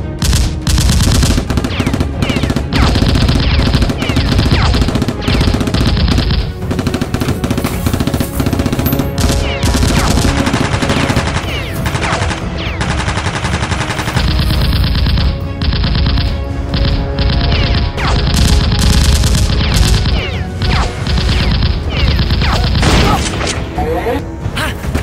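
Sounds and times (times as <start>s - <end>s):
background music: 0.0s - 25.0s
machine-gun fire: 0.1s - 23.4s.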